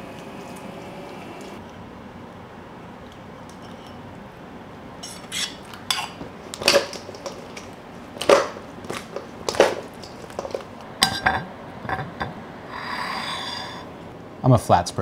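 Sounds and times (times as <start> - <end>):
wings clattering in metal bowl: 5.9 - 10.8.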